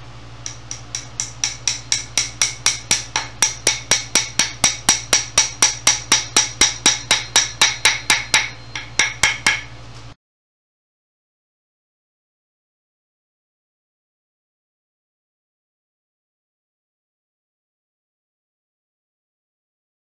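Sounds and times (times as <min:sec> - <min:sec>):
hammer tapping: 0:00.4 - 0:09.7.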